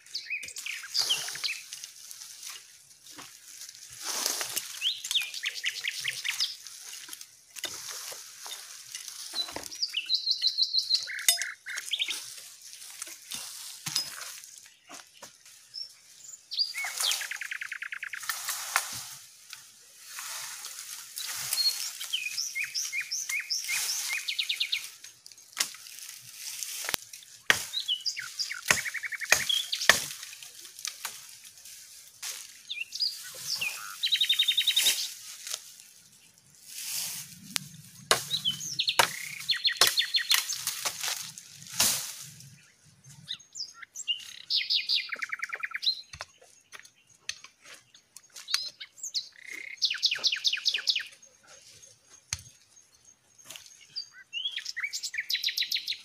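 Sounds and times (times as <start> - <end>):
birds chirping and whistling: 0.0 - 2.7, 4.1 - 7.0, 7.8 - 19.3, 20.2 - 31.1, 32.4 - 35.5, 36.1 - 56.0.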